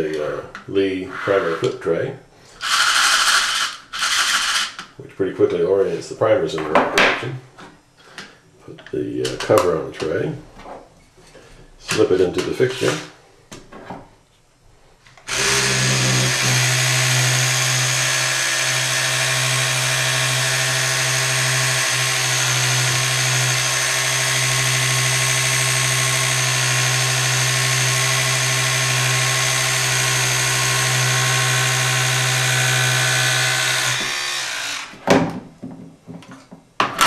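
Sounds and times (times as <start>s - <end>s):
vibrating tool buzzing: 2.6s - 4.8s, 15.3s - 35.0s.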